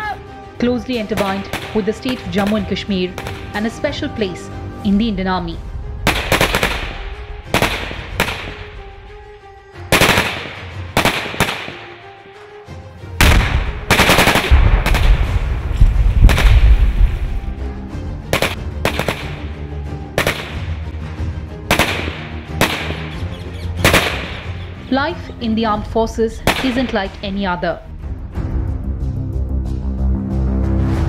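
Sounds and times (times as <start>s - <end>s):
background music: 0.0s - 31.0s
rifle and machine-gun fire: 6.0s - 6.9s, 7.5s - 8.6s, 9.9s - 11.8s, 13.2s - 15.4s, 16.2s - 16.8s, 18.3s - 19.5s, 20.2s - 20.7s, 21.7s - 23.1s, 23.8s - 24.6s, 26.4s - 27.0s
blast with heavy low rumble: 13.2s - 17.6s.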